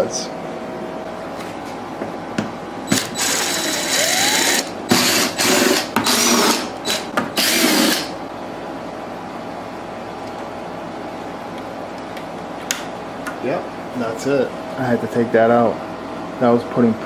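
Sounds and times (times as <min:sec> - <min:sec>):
cordless drill motor whining: 0:02.9 - 0:08.1.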